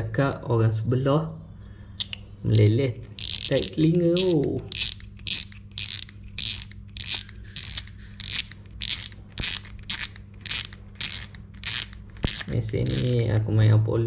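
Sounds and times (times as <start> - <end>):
fishing reel drag clicking: 2.6 - 13.2.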